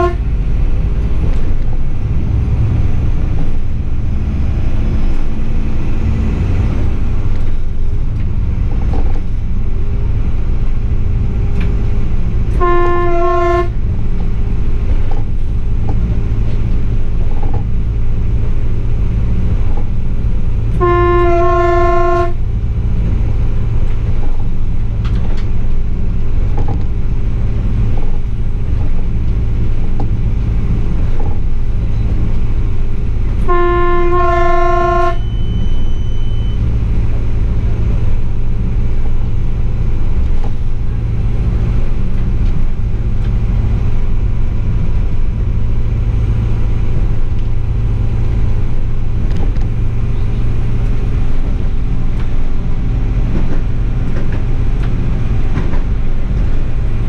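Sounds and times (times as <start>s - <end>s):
two-tone train horn blasts: 0.0s - 0.4s, 12.5s - 13.9s, 20.7s - 22.5s, 33.4s - 36.7s
diesel railcar rumbling on track: 0.0s - 57.0s.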